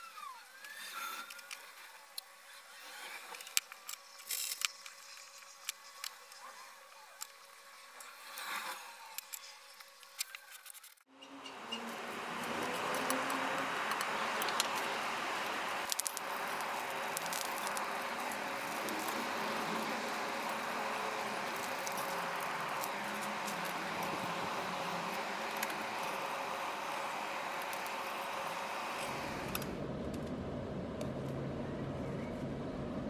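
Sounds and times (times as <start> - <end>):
rushing air with faint hum: 11.4 - 33.0.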